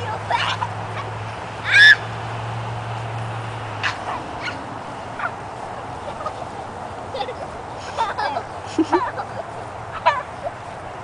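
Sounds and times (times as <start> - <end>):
boy shrieking: 1.6 - 2.0.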